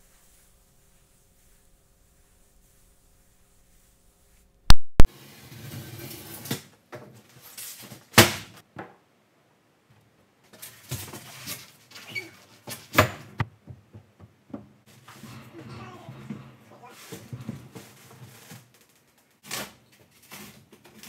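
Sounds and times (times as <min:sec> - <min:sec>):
foam boards knocking and thudding: 0:08.1 - 0:09.0.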